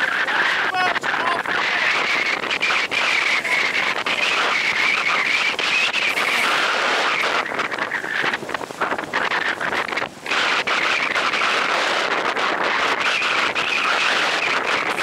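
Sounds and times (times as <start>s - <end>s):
wind buffeting microphone: 0.0s - 15.0s
water hissing along hull: 0.1s - 15.0s.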